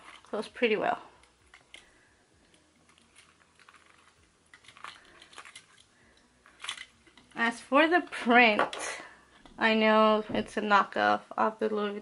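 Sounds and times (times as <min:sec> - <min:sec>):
keys and case clicking: 0:02.9 - 0:05.9, 0:06.5 - 0:07.3.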